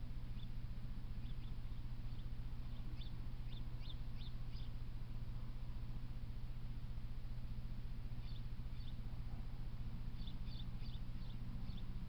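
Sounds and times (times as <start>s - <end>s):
steady low hum: 0.0s - 12.0s
small bird chirping: 0.3s - 0.6s, 1.2s - 4.8s, 8.2s - 9.1s, 10.0s - 12.0s.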